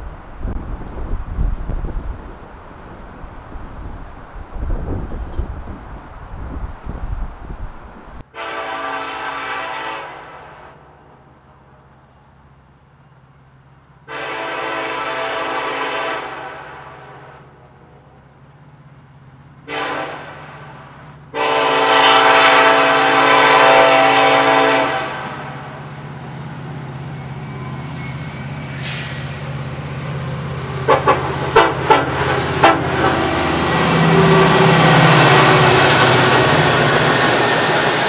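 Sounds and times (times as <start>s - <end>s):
locomotive engine hum: 0.0s - 38.0s
locomotive air horn blasts: 8.3s - 10.8s, 14.0s - 17.4s, 19.6s - 25.8s, 30.9s - 36.0s.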